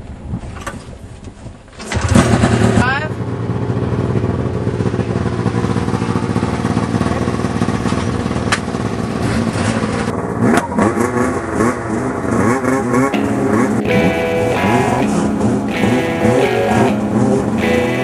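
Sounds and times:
snowmobile engines idling and revving: 1.8 - 18.0.

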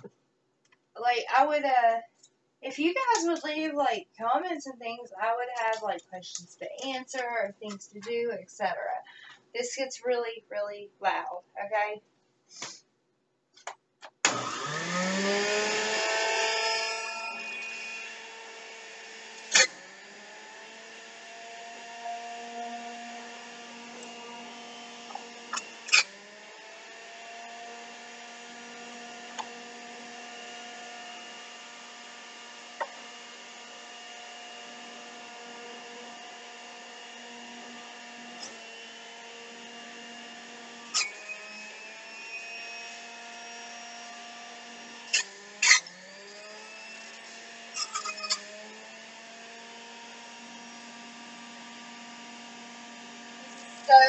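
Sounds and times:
juicer motor whine: 14.2 - 54.0.

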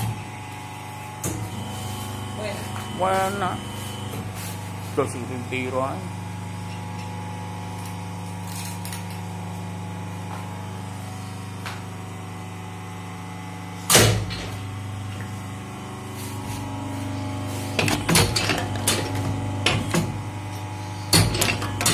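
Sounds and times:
machine electric hum: 0.0 - 21.9
loud machine clunk: 13.9 - 14.7, 17.7 - 20.2, 21.1 - 21.9.

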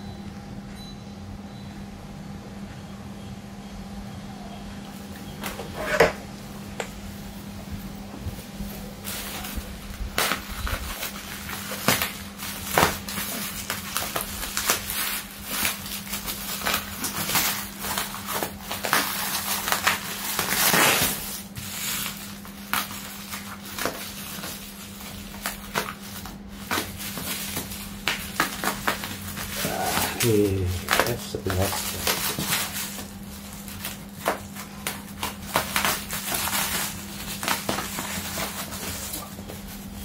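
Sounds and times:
plastic and tape crinkling: 7.6 - 40.0
tape tearing: 9.0 - 40.0
scissors cutting plastic: 9.1 - 39.6.

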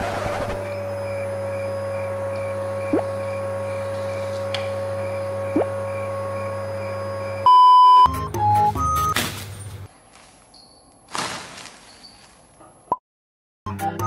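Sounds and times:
stick vacuum cleaner running: 0.0 - 7.6
loud steady test tone beep: 0.6 - 8.1.

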